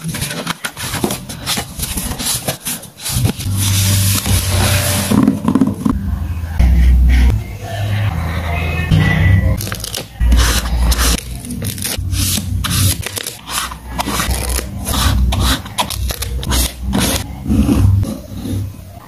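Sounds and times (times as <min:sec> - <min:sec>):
pencil scratching on paper: 0:00.0 - 0:05.8, 0:09.6 - 0:19.0
stickers being peeled off: 0:09.6 - 0:17.4.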